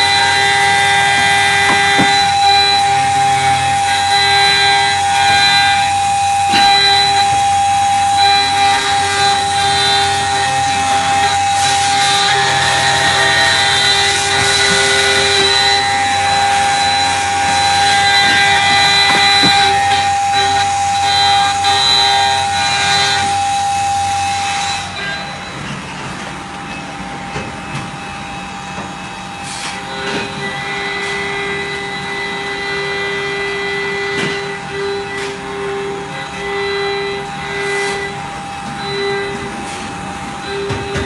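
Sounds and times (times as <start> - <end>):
cutter scratching metal: 0.0 - 25.2
spindle whine: 0.0 - 41.0.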